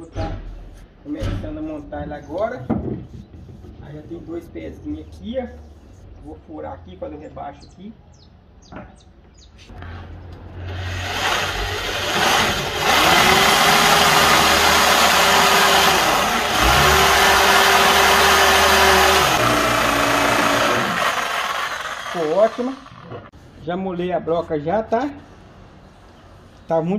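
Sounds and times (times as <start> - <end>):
electric drill boring into wood: 10.6 - 23.3.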